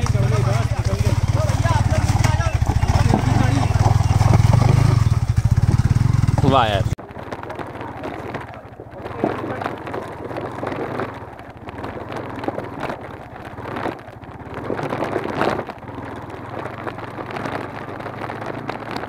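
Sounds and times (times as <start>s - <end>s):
motorcycle engine running: 0.0s - 19.0s
wind on microphone: 7.0s - 19.0s.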